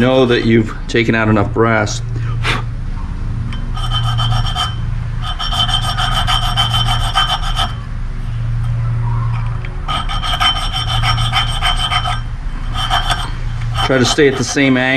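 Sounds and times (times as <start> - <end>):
steady low hum: 0.0 - 14.9
gear ringing high tone: 3.5 - 14.9
hand file rasping on metal: 3.7 - 7.8, 9.9 - 14.9.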